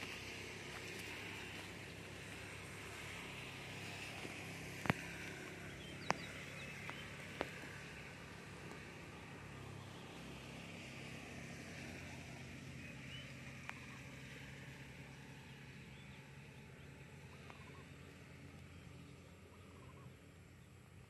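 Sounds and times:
low motor hum: 0.0 - 21.0
faint bird chirps: 15.9 - 20.3.

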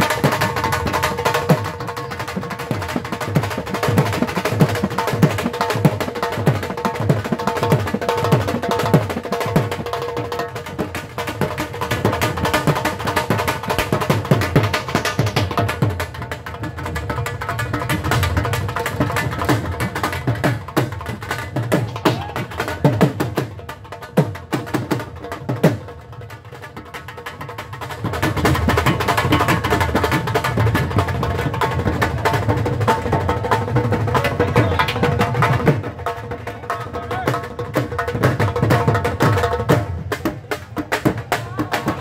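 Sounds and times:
dhol beaten with sticks: 0.0 - 42.0
other drums: 0.0 - 42.0.

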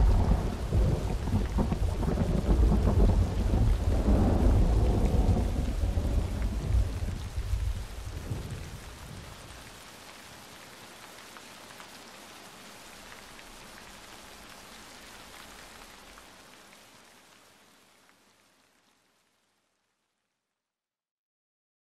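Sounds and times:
low thunder rumble: 0.0 - 9.5
steady rain falling: 0.0 - 20.5.

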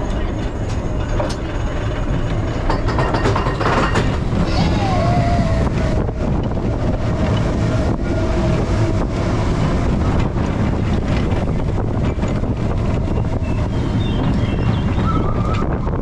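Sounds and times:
roller coaster running on track: 0.0 - 16.0
wind rushing over microphone: 3.6 - 16.0.

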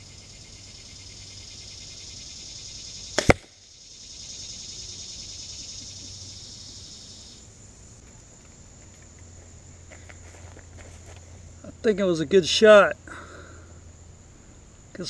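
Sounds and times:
insect chorus: 0.0 - 15.0
bolt hitting target: 3.2 - 3.6
crossbow release snap: 3.2 - 3.6.

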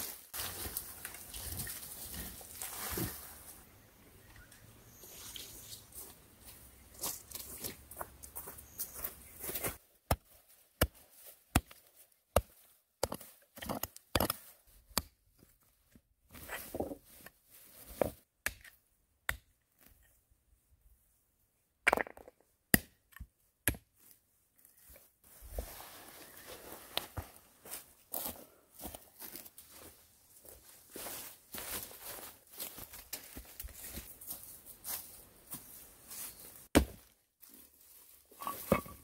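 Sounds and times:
scraping of dirt and rock: 0.0 - 3.8, 35.6 - 39.0.

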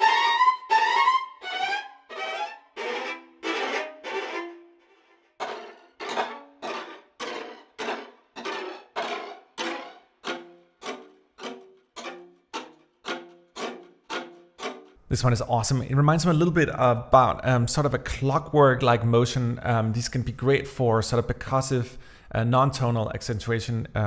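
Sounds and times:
viola bowed pulse strokes: 0.0 - 15.0.

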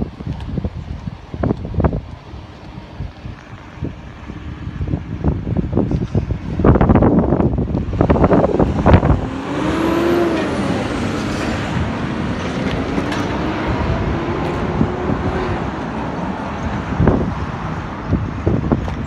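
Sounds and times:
road noise: 0.0 - 19.0
wind buffeting microphone: 0.0 - 19.0
vehicle engine passing: 7.8 - 18.2.

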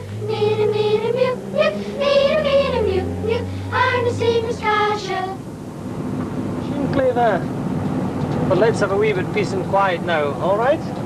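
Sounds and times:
children singing in unison: 0.0 - 5.5.

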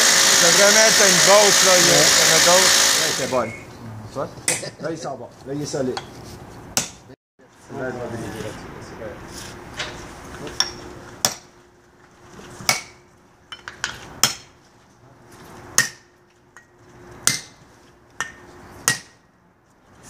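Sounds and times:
hammer striking metal wedges: 10.6 - 11.5, 12.7 - 14.5, 15.8 - 16.1, 17.2 - 17.6, 18.2 - 19.2.

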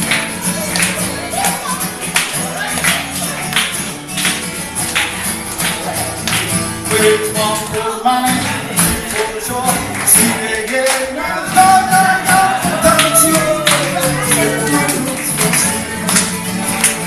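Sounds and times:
acoustic guitars strumming: 0.0 - 17.0
man and woman singing: 6.8 - 16.0.

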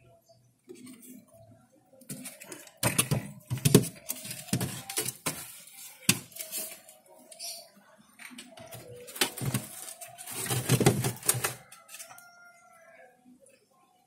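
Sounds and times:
bamboo slats knocking and scraping: 2.1 - 6.8, 8.7 - 11.7.

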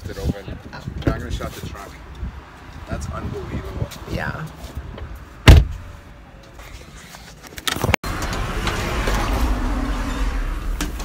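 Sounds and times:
car trunk lid thumping shut: 5.4 - 5.8.

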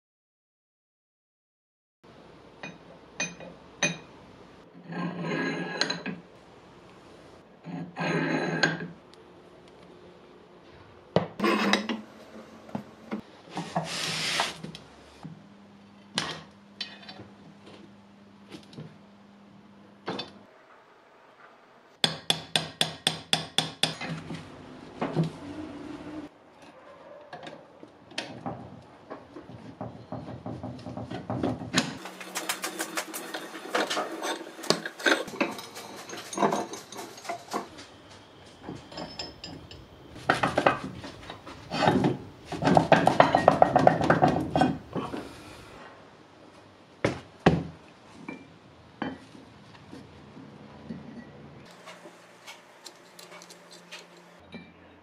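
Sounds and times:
hand tools scraping on metal: 11.4 - 12.6, 32.0 - 45.8, 51.0 - 54.4
metal parts knocked and set down: 31.4 - 37.8, 38.6 - 45.2.

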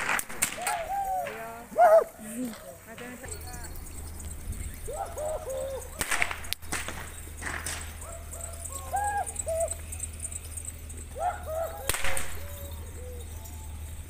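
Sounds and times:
rope whip cracks: 0.0 - 1.5, 6.0 - 7.9, 11.8 - 12.4
short hooting calls: 0.0 - 14.0.

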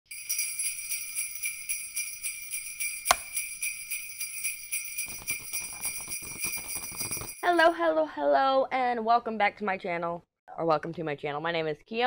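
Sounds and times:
sleigh bells jingling: 0.1 - 7.8.

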